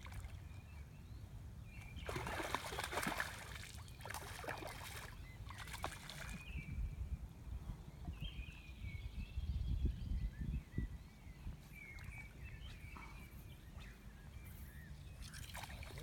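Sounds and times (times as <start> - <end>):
birds chirping: 7.9 - 16.0.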